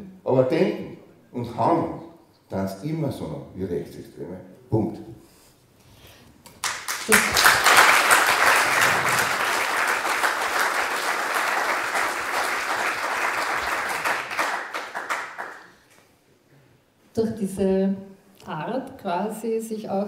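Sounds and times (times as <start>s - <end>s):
audience applause: 6.6s - 15.8s.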